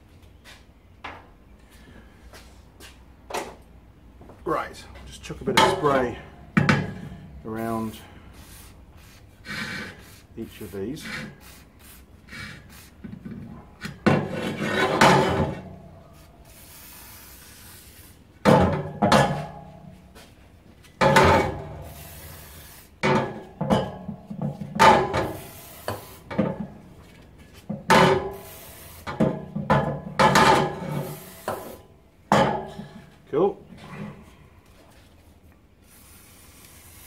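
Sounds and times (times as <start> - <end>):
aerosol spray bursts: 9.9 - 13.0, 16.2 - 18.2, 21.8 - 23.0, 25.2 - 26.3, 28.3 - 29.1, 31.0 - 31.8, 35.8 - 37.0.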